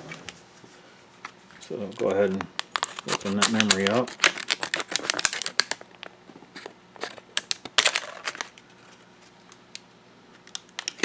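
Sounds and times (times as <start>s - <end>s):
plastic package crackling: 2.0s - 8.6s.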